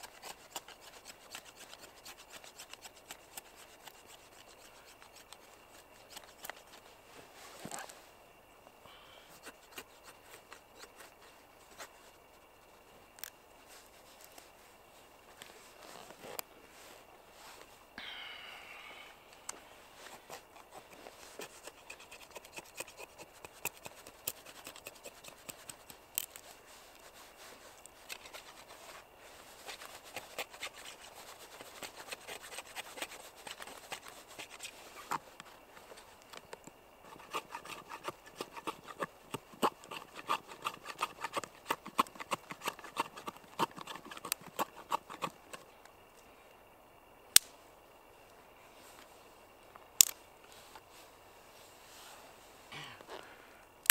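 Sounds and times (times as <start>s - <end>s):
knife scraping wooden stick: 0.0s - 6.8s, 9.4s - 12.0s, 20.0s - 35.2s, 37.0s - 45.6s.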